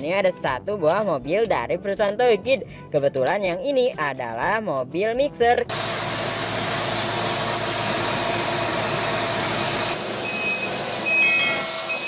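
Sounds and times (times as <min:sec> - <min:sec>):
truck engine running: 0:05.7 - 0:12.0
reversing alarm beeping: 0:09.6 - 0:12.0.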